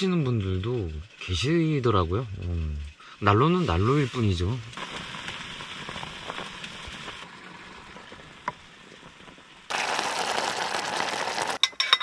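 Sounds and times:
water boiling in metal pot: 3.4 - 12.0.

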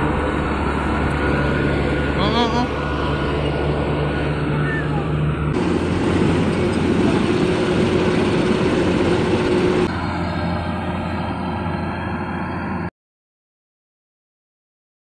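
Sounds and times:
combine harvester drone: 0.0 - 12.9.

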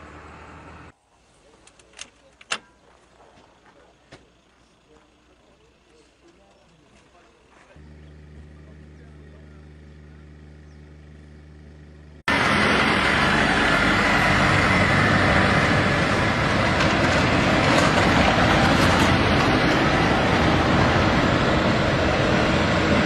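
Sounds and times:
trucks driving past: 0.0 - 1.0, 7.8 - 23.0.

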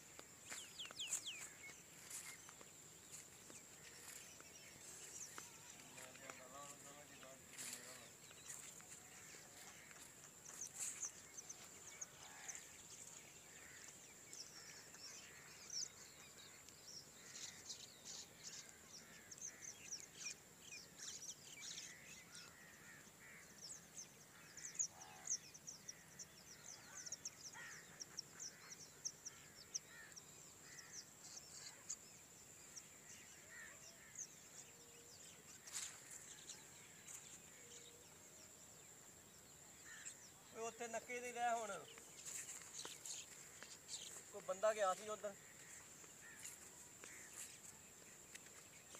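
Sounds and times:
small birds chirping: 0.0 - 48.9.

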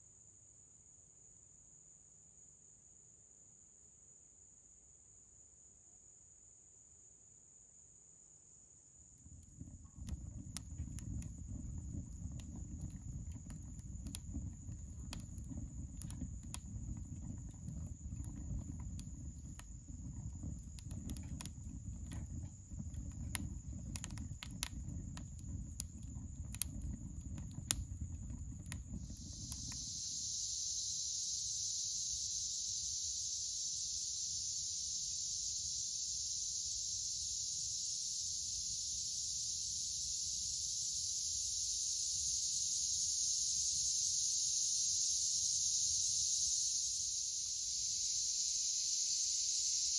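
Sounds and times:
insects chorus: 0.0 - 49.9
fire popping and crackling: 9.2 - 30.4
fire rumbling: 9.2 - 30.9.

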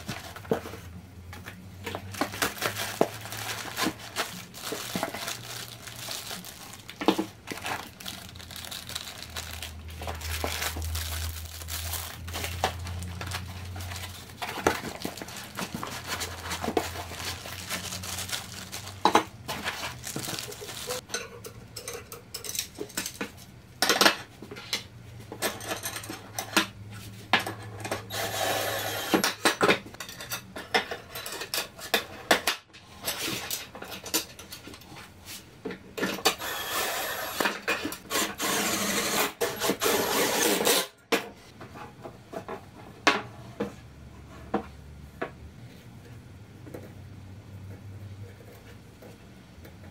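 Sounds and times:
plastic wrapping crinkling: 1.8 - 21.0
foam packing rubbing: 2.1 - 21.0.

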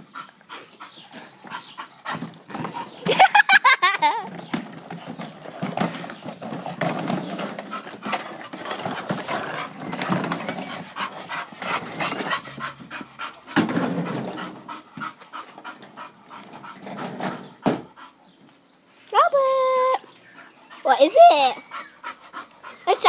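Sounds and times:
dog panting rapidly: 0.0 - 3.1, 6.4 - 18.4, 20.1 - 23.0.

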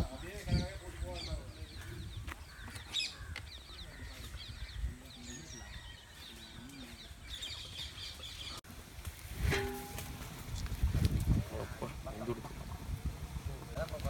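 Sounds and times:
birds chirping: 0.0 - 8.6.

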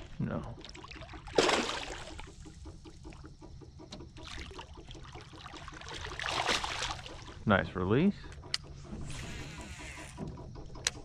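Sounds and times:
fish splashing: 0.6 - 3.3, 4.2 - 7.4.

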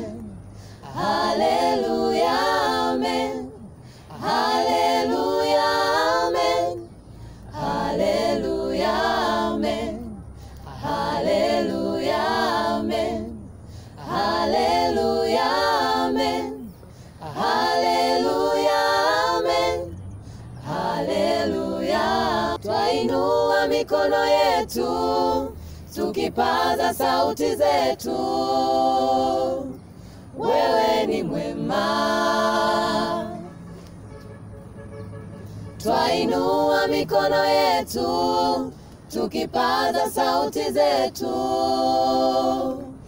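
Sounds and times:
group singing a cappella: 0.0 - 34.1, 35.4 - 43.0.

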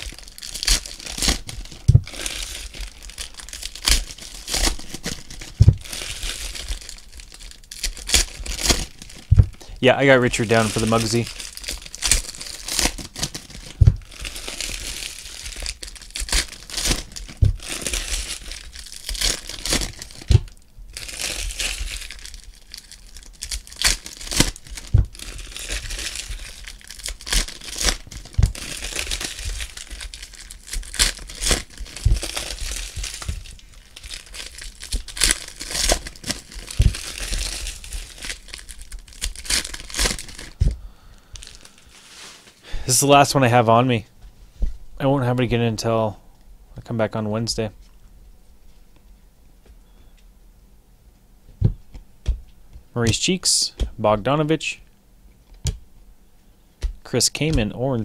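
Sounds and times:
foil wrappers crinkling: 0.0 - 43.6.

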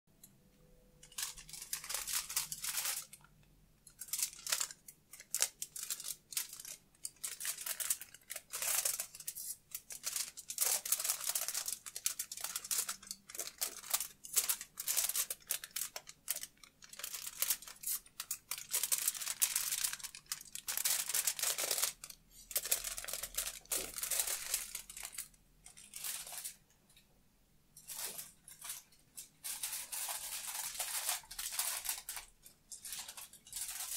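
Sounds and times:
aluminium foil crinkling: 1.0 - 26.6, 27.8 - 33.9.

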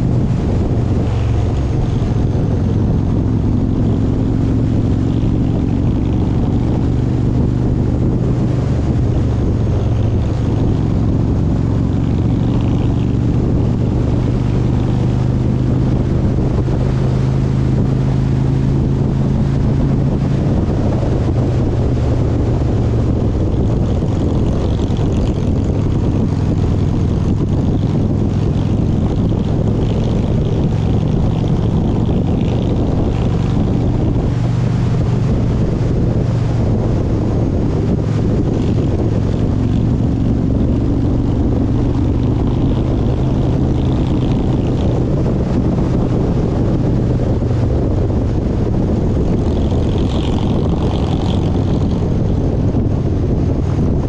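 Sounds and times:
travel noise: 0.0 - 54.0
vehicle engine droning: 0.0 - 54.0.

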